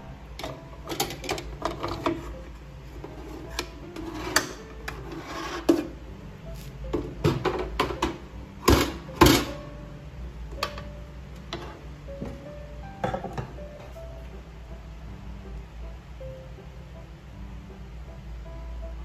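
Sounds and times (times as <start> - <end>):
metal tray scraping on wire rack: 3.0 - 6.0.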